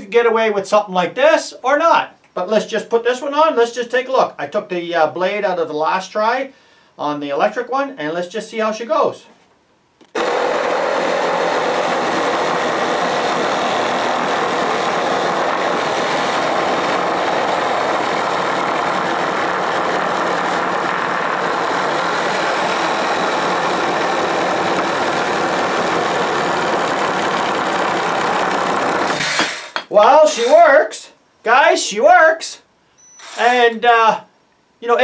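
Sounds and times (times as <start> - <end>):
reciprocating saw cutting wood: 10.1 - 30.7.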